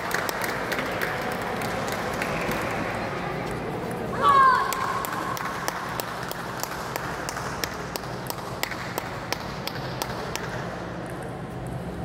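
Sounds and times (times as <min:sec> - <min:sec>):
spectators clapping in rhythm: 0:00.0 - 0:03.1, 0:04.5 - 0:10.9
held shout: 0:04.1 - 0:05.1.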